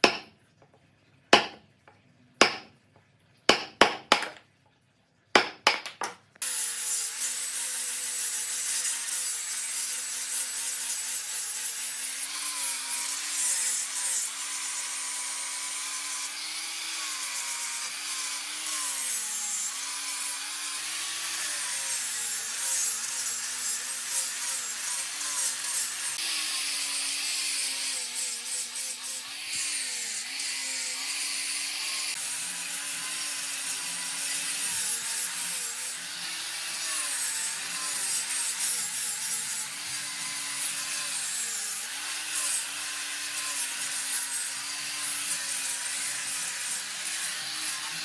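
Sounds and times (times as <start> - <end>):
angle grinder sanding wood: 6.4 - 48.0.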